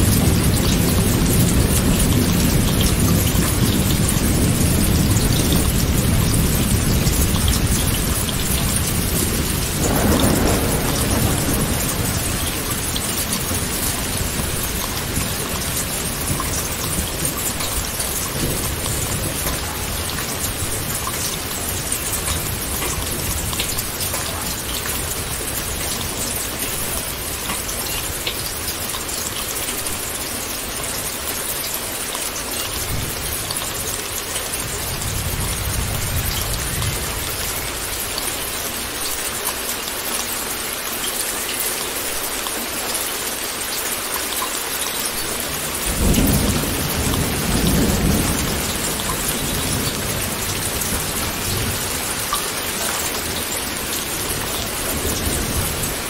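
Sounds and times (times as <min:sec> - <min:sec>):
distant thunder rumbling: 0:00.0 - 0:28.3, 0:45.7 - 0:56.0
heavy rain: 0:00.0 - 0:56.0.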